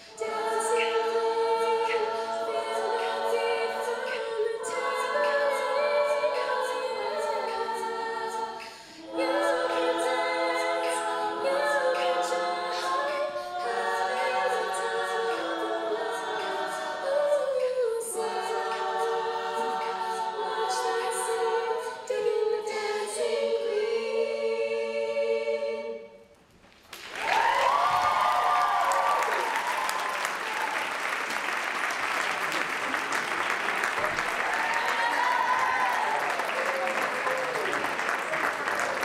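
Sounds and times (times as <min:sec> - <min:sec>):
women singing in harmony: 0:00.0 - 0:26.3, 0:34.4 - 0:36.9.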